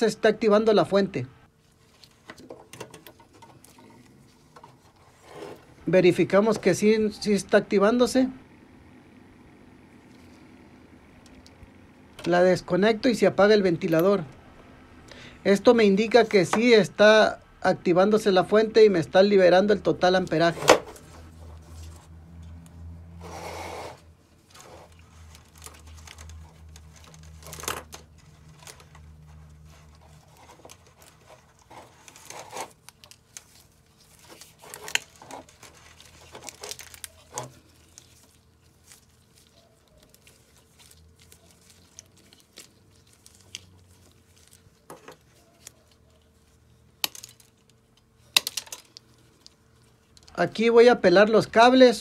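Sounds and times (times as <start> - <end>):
wires rustling: 1.4 - 8.4, 18.2 - 52.0.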